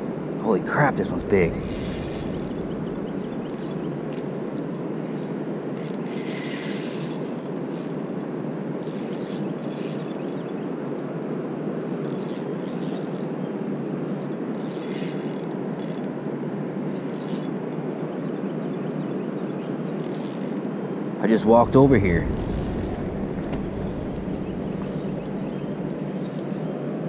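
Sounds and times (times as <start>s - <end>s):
fishing reel gear rattle: 1.6s - 2.7s, 3.3s - 8.2s, 8.8s - 10.4s, 11.9s - 13.3s, 14.2s - 16.1s, 16.9s - 17.6s, 19.9s - 20.7s, 22.2s - 26.5s.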